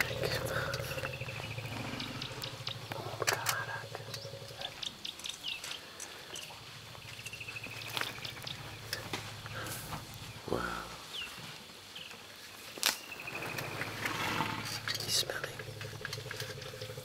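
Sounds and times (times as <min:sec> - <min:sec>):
bird trilling: 0:00.0 - 0:05.6
low steady hum: 0:00.0 - 0:11.2, 0:13.3 - 0:17.0
elephants crunching vegetation: 0:12.6 - 0:14.7.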